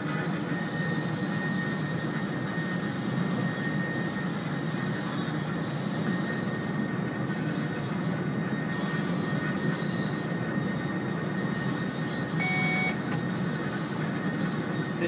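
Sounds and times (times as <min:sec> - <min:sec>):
faint steady whine: 0:00.0 - 0:15.0
locomotive cab running noise: 0:00.0 - 0:15.0
short electronic beep: 0:12.4 - 0:13.0.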